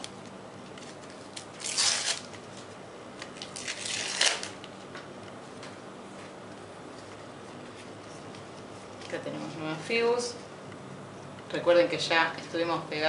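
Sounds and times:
paper packet tearing: 0.8 - 2.6, 3.3 - 4.6.

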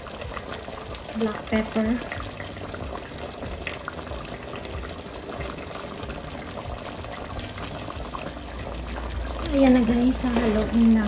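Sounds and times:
curry pot bubbling: 0.0 - 11.0
small pops of boiling pot: 7.7 - 11.0.

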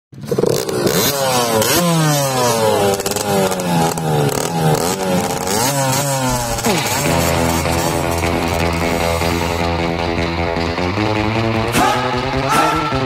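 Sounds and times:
motocross bike engine revving: 0.1 - 13.0.

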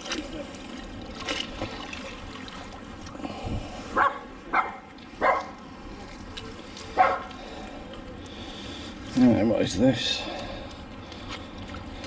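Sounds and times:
dog barking: 4.0 - 5.6, 7.0 - 7.3.

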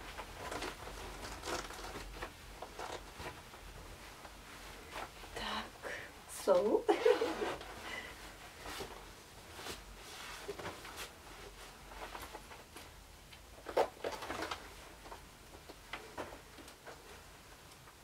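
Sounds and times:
costume fabric rustling: 0.0 - 18.0.

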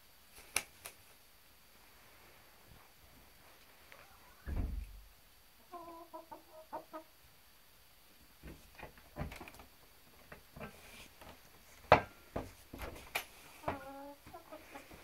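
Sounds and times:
chickens clucking: 5.6 - 7.2, 12.8 - 15.0.

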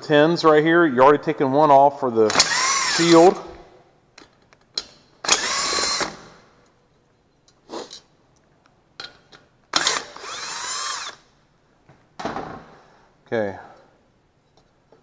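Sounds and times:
cordless drill spinning: 2.3 - 3.2, 5.3 - 6.2, 9.7 - 11.2.

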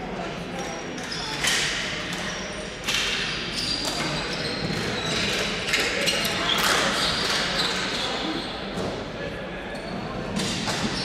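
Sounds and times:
shoes squeaking: 3.5 - 8.6.

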